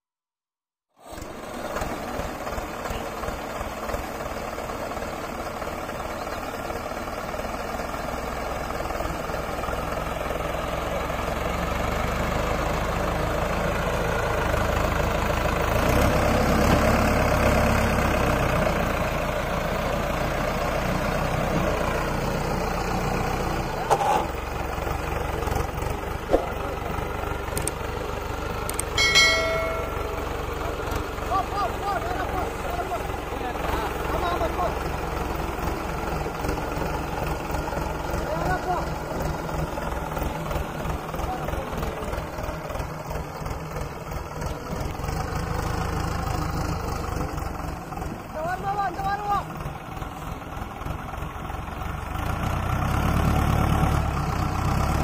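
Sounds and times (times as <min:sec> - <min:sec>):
diesel tractor engine running: 0:01.0 - 0:55.0.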